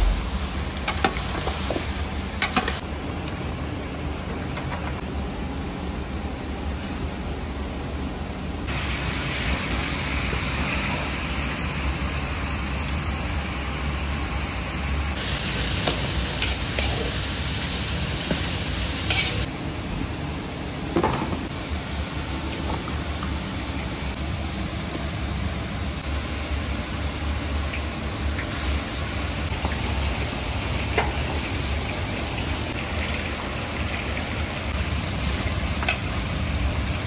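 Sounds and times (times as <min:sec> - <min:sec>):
meat sizzling: 0:15.2 - 0:19.5, 0:32.8 - 0:37.0
metal spatula scraping: 0:19.1 - 0:19.5.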